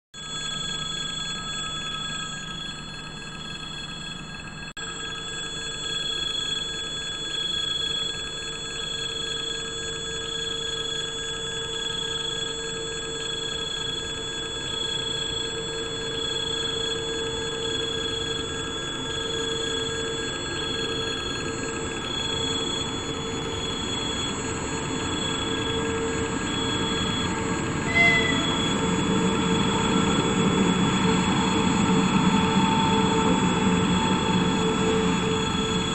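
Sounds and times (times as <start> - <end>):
train noise: 14.0 - 35.9
level crossing bell ringing: 27.9 - 29.1.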